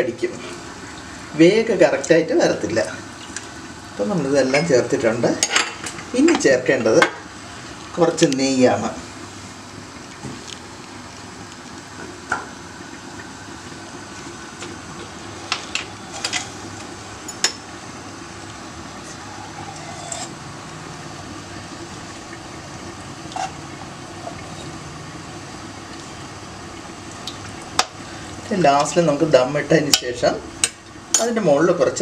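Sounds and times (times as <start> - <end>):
pot bubbling: 0.0 - 32.0
metal utensil clinking on pot: 19.6 - 20.4.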